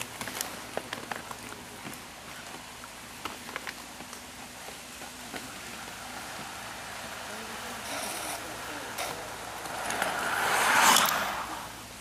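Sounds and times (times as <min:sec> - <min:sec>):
light clicks and taps of skates: 0:00.0 - 0:06.6
skate wheels rolling on pavement: 0:00.0 - 0:12.0.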